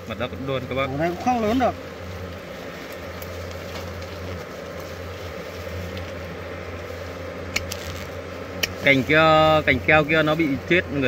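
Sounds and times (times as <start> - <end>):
wasps buzzing: 0.0 - 11.0.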